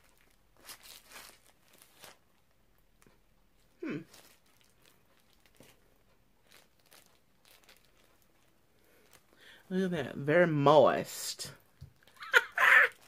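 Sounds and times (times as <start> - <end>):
gloves rustling as peeled off: 0.0 - 3.2, 4.0 - 9.6.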